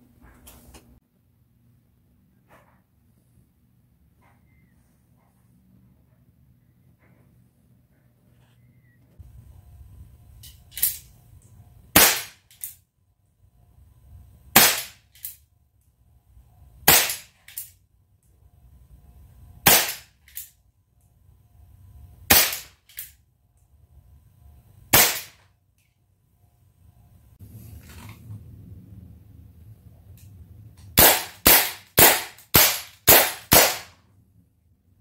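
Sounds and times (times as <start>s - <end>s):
air pistol shots popping: 11.9s - 12.7s, 14.6s - 15.3s, 16.9s - 17.6s, 19.6s - 20.4s, 22.3s - 23.1s, 24.9s - 25.4s, 31.0s - 34.0s.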